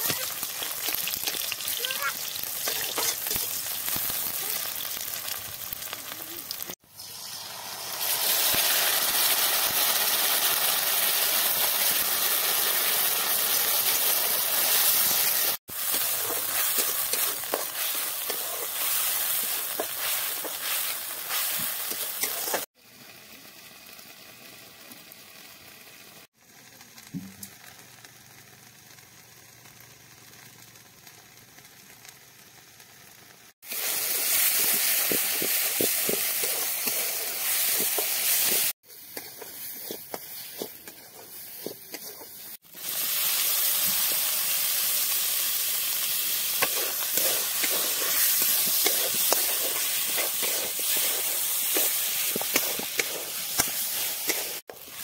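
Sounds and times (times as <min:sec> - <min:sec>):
onions sizzling in hot oil: 0:00.0 - 0:55.0
steel spatula scraping pan: 0:46.6 - 0:55.0.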